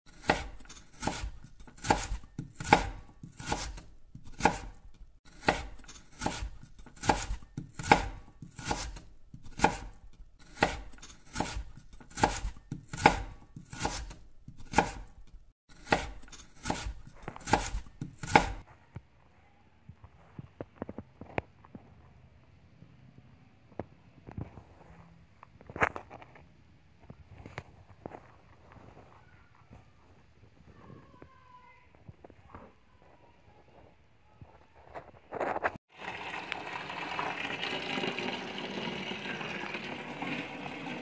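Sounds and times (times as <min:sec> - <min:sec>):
knife chopping on a board: 0:00.1 - 0:18.7.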